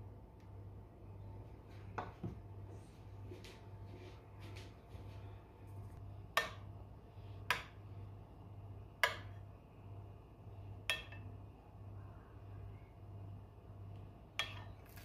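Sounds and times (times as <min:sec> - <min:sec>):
steady low hum: 0:00.0 - 0:15.0
spoon clinking on ceramic plate: 0:14.4 - 0:14.8.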